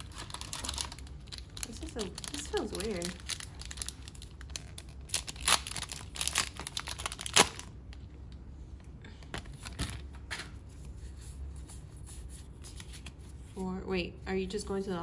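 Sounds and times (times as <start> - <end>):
foil wrapper crinkling: 0.0 - 7.7
wrapper ripping: 0.0 - 7.7.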